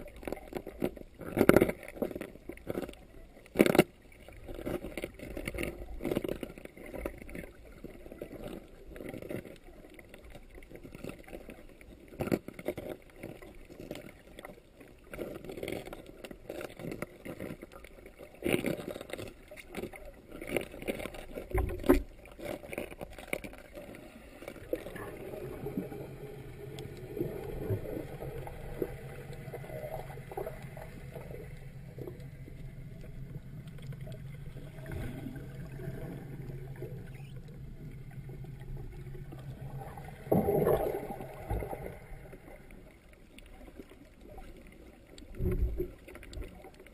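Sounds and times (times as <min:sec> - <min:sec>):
muffled underwater knocks and clicks: 0:00.0 - 0:44.5, 0:45.1 - 0:46.9
low hum: 0:24.6 - 0:43.2.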